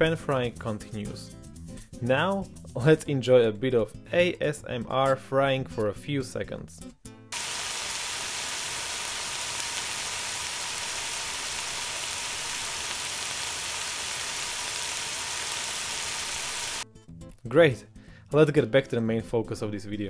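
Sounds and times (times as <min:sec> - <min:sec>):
meat sizzling in a pan: 0:07.4 - 0:16.8.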